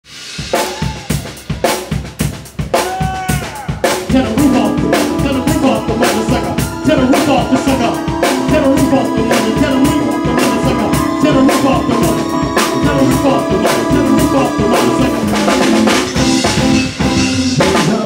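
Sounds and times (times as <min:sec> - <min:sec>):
drum kit hits with cymbals: 0:00.0 - 0:18.0
band playing sustained chords: 0:04.1 - 0:17.6.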